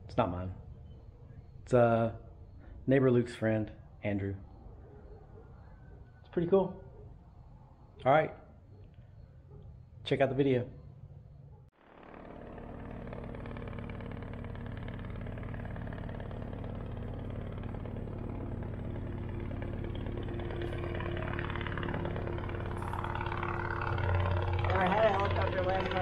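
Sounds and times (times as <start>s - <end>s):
helicopter engine and rotor: 11.7s - 26.0s.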